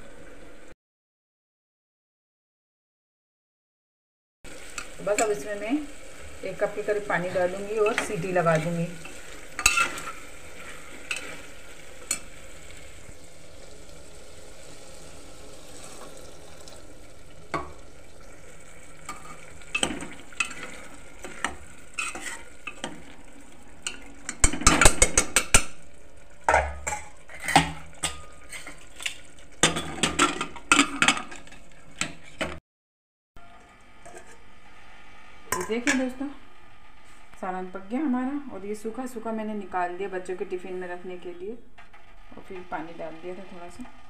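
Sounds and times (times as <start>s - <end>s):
spices sizzling in oil: 4.5s - 32.4s
spoon scraping a pot: 7.8s - 12.8s, 19.1s - 23.1s, 26.5s - 32.6s, 34.0s - 34.5s.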